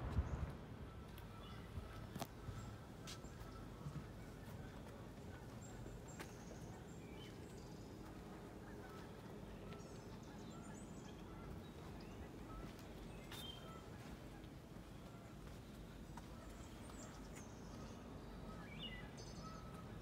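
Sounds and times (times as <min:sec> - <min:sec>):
low rumble: 0:00.0 - 0:02.0
faint birds chirping: 0:00.0 - 0:20.0.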